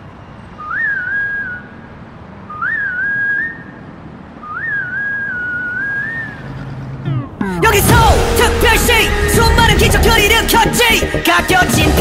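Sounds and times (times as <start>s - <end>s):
whistled melody: 0.6s - 1.8s, 2.5s - 3.8s, 4.4s - 6.4s.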